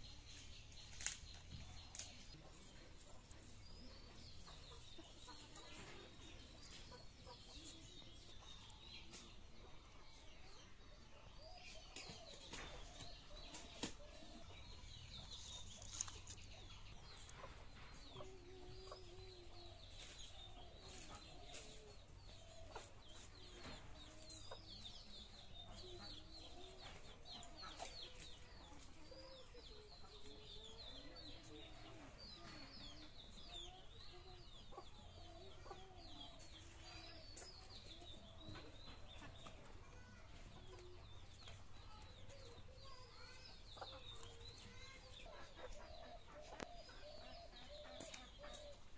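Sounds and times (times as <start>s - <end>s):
chickens clucking: 0.0s - 48.9s.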